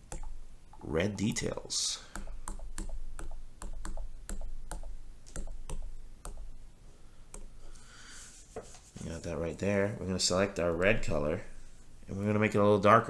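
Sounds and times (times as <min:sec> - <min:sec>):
stylus tapping on touchscreen: 0:02.1 - 0:06.5.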